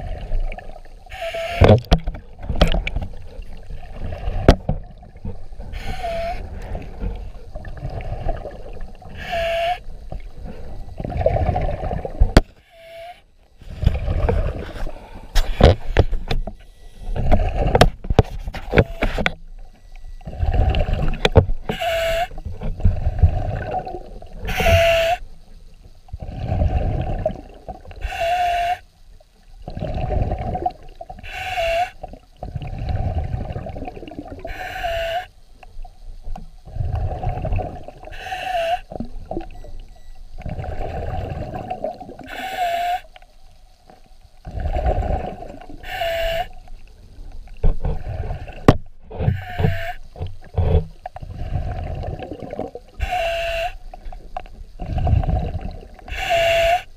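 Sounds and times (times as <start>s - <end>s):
diver breathing through regulator: 5.7s - 8.5s, 34.4s - 35.4s, 42.2s - 43.1s, 44.5s - 46.6s.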